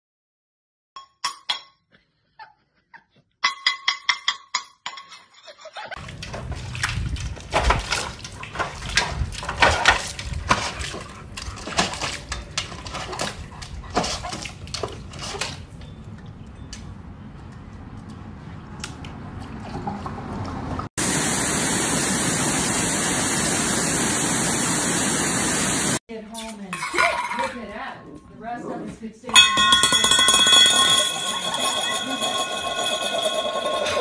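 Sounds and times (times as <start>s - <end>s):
dog splashing in water bowl: 6.0s - 15.7s.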